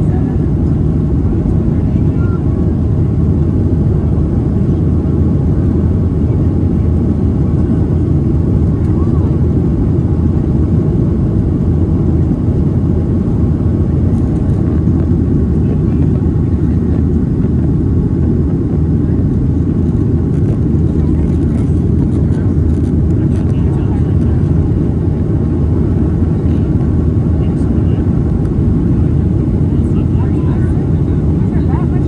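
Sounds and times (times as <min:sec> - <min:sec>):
airliner cabin rumble: 0:00.0 - 0:32.0.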